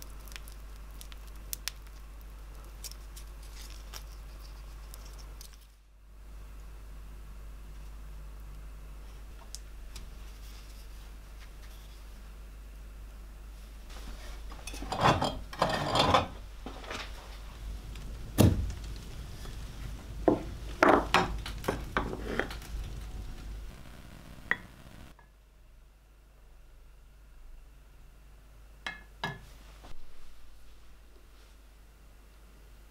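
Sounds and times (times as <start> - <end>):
rustling scrapes on workbench: 21.7 - 22.8.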